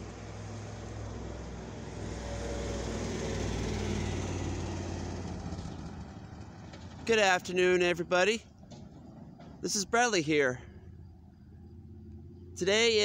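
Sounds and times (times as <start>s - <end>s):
vehicle driving past: 0.0s - 7.1s.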